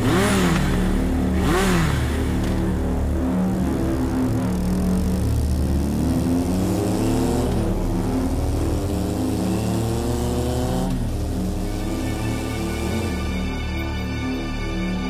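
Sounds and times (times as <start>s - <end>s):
motorcycle engine accelerating: 0.0s - 15.0s.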